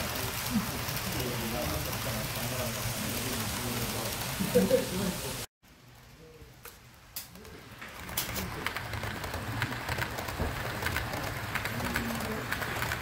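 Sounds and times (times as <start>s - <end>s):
model train rolling on metal track: 0.0s - 13.0s
wheels clicking over rail joints: 6.6s - 13.0s.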